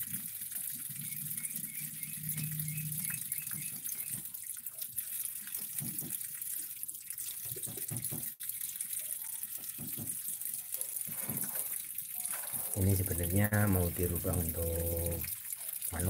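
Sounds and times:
water running and splashing: 0.0s - 16.0s.

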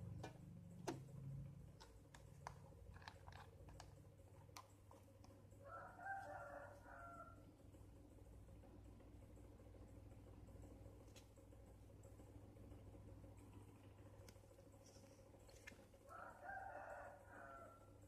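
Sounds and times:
faint rooster crowing: 5.5s - 7.6s, 16.0s - 18.0s.

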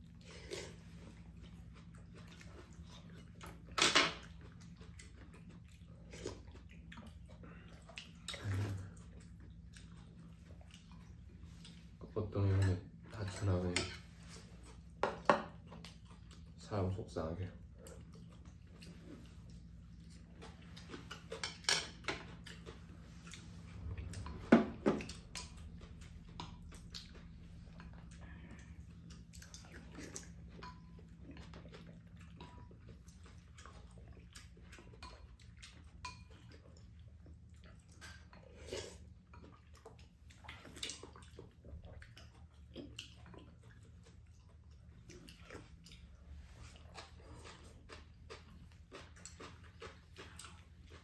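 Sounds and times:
faint low hum: 0.0s - 51.0s
people slurping soup: 8.3s - 9.1s.

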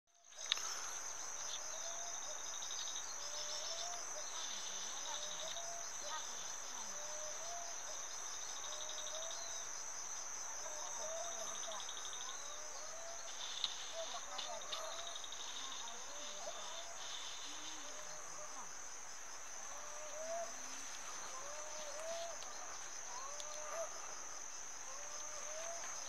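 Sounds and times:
insect drone with pulsing trills: 0.1s - 26.0s
short insect chirping calls: 0.2s - 26.0s.

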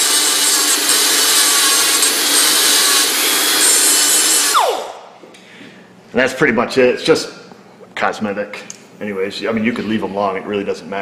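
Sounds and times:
grinder grinding metal: 0.0s - 4.8s.

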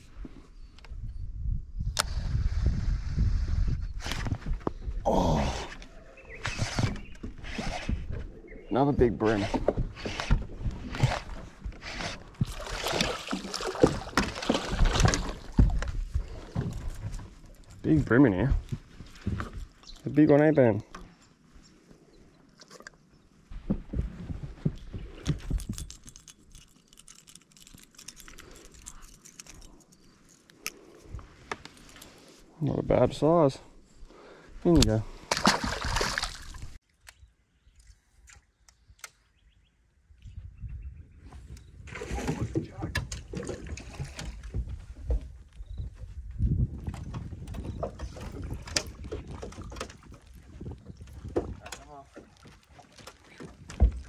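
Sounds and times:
water splashing and sloshing: 9.0s - 30.4s, 34.9s - 36.9s, 41.8s - 54.0s
fish splashing in water: 12.4s - 15.7s, 35.3s - 36.8s.

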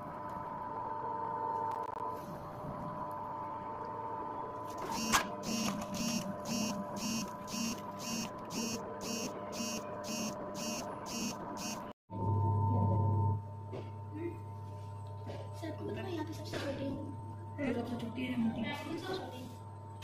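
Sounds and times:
regular pulsing sound: 5.0s - 11.9s.

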